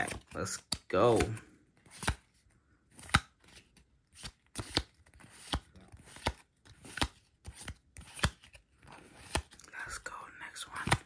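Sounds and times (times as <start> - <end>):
trading cards snapping: 4.2 - 8.6.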